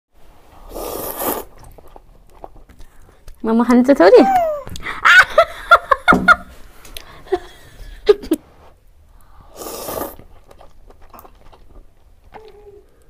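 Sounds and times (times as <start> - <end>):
person slurping noodles: 0.6 - 1.9, 9.5 - 10.3.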